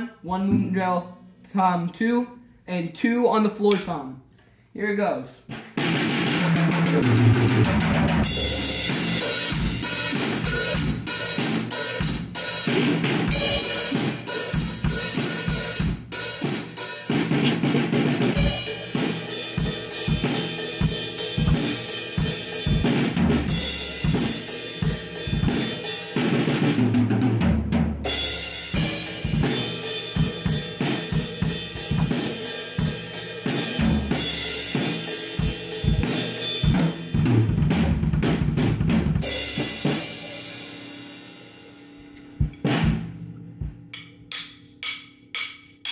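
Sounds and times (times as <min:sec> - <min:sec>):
drum kit playing: 0:00.4 - 0:01.4, 0:05.5 - 0:45.9
cymbals: 0:05.8 - 0:26.8, 0:28.0 - 0:37.1, 0:39.2 - 0:42.9, 0:43.9 - 0:45.9.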